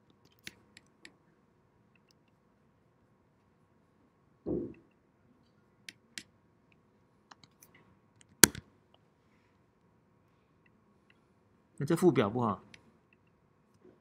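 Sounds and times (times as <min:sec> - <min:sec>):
keyboard and mouse clicks: 0:00.2 - 0:00.9, 0:08.2 - 0:08.6.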